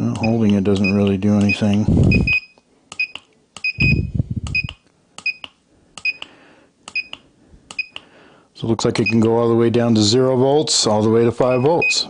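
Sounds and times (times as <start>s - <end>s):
short high beeps: 0.2s - 6.2s, 6.9s - 8.0s
low rumble: 3.8s - 4.6s.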